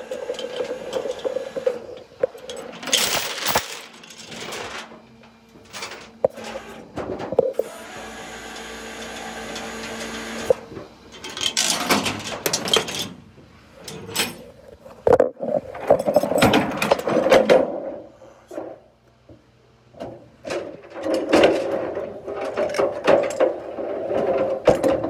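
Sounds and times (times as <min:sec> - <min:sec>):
tow chains scraping and clanking: 0:00.0 - 0:05.0, 0:05.6 - 0:07.8, 0:11.1 - 0:13.2, 0:13.8 - 0:17.2
mechanical hum: 0:00.0 - 0:25.0
chains rattling and knocking: 0:02.4 - 0:04.6.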